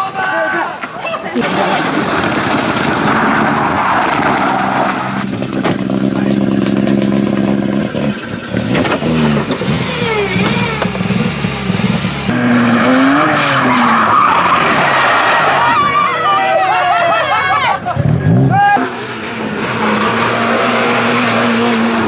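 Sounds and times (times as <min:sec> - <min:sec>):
rally car sliding on gravel: 0:00.0 - 0:18.0
tyres spinning: 0:00.6 - 0:18.0
rally car engine at high revs: 0:01.4 - 0:16.0, 0:17.8 - 0:22.0.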